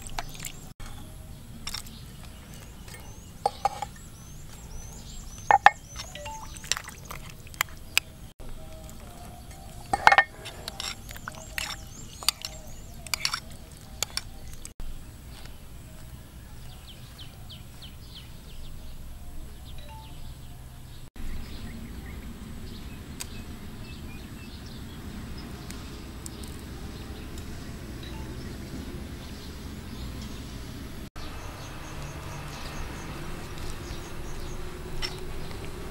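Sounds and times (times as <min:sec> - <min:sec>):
faint bird chirps: 0:00.1 - 0:07.1, 0:16.4 - 0:22.3
metal spoon clinking against bowl: 0:05.5 - 0:06.9, 0:09.5 - 0:14.3.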